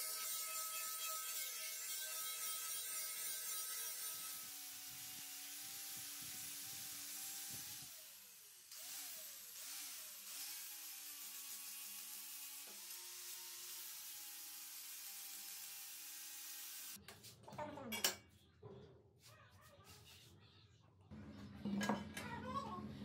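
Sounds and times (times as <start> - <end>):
angle grinder grinding steel: 0.0 - 17.0.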